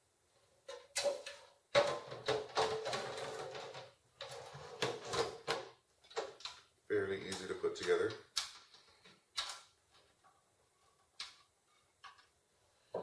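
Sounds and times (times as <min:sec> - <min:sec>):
metal cover scraping: 0:01.8 - 0:05.6.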